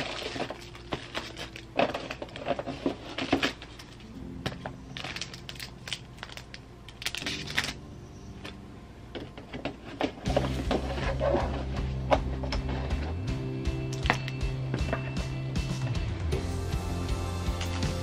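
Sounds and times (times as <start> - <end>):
plastic bags crinkling: 0.0 - 4.1, 4.9 - 7.8.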